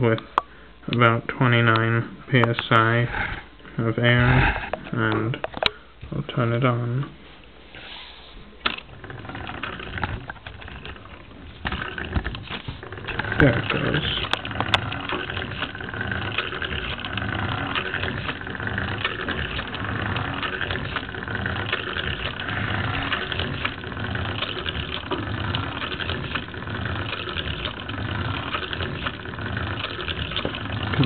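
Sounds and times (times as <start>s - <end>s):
plastic linkages clattering: 8.6s - 31.0s.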